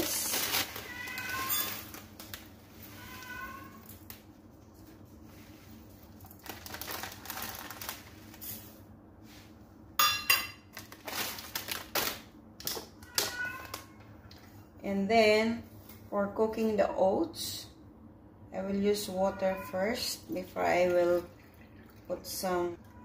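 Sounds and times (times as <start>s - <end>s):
plastic bag crinkling: 0.0s - 4.2s, 5.8s - 8.8s, 10.7s - 12.3s.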